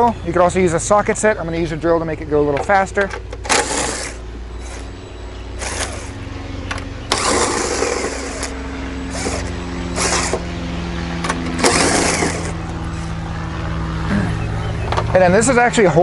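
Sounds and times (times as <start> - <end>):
cordless drill motor whine: 3.3 - 13.8.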